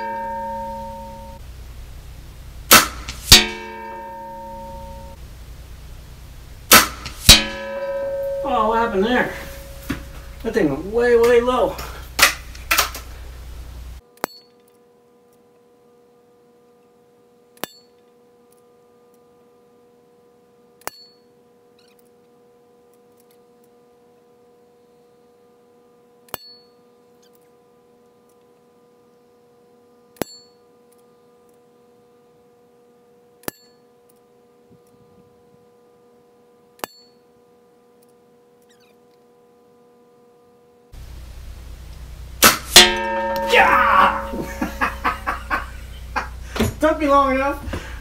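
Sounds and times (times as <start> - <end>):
steady hum: 0.0 - 14.0, 41.0 - 48.0.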